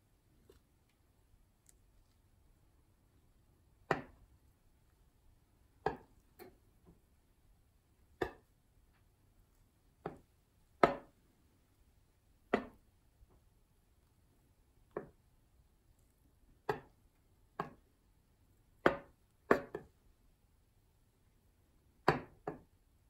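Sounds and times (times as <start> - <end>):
knife tapping glass baking dish: 3.9 - 4.2, 5.8 - 6.6, 8.2 - 8.5, 10.0 - 11.1, 12.5 - 12.8, 16.7 - 16.9, 17.6 - 17.8, 18.8 - 19.9.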